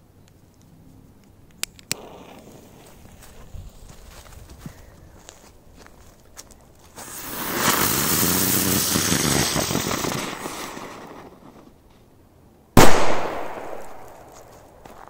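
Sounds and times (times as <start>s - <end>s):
firecracker hissing: 6.9s - 11.7s
firecracker bang: 12.8s - 14.4s.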